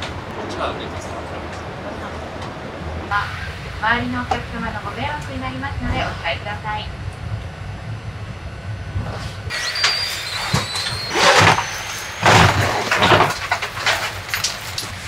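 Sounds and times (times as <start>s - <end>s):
cabin hum: 0.0s - 15.0s
luggage clunking and scraping: 10.6s - 14.8s.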